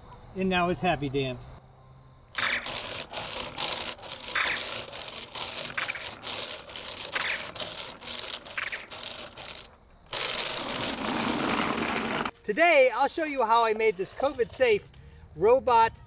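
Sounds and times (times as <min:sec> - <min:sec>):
robot wheels scraping over asphalt: 0:02.3 - 0:13.2
steady rushing noise: 0:02.4 - 0:12.3
small trailer rattling: 0:02.6 - 0:12.3.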